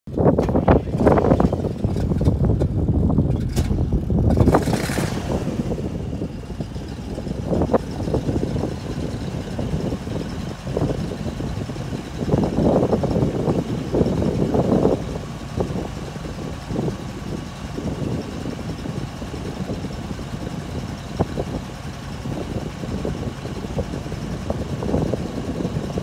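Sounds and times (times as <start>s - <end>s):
truck engine running: 0.1s - 26.0s.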